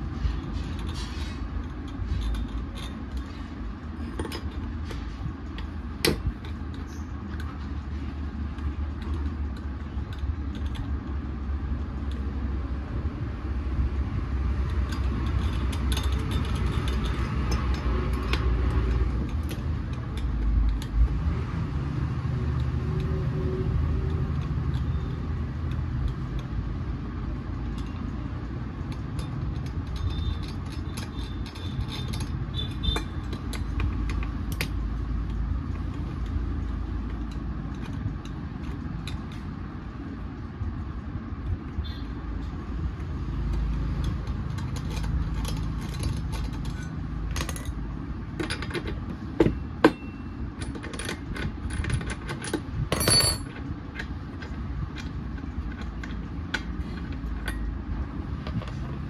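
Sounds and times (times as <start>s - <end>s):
low mechanical rumble: 0.0s - 59.0s
metallic clicks and taps: 22.0s - 39.6s.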